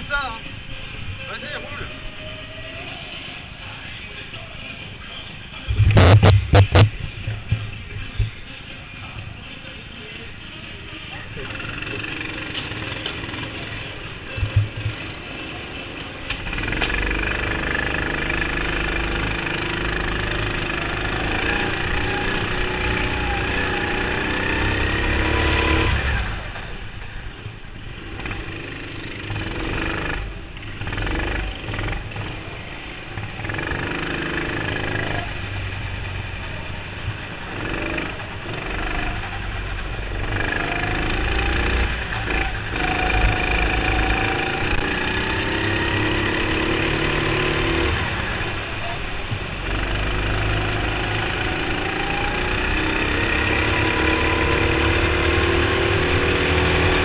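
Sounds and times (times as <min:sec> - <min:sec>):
go-kart engine accelerating: 0:05.6 - 0:07.5, 0:11.3 - 0:57.0.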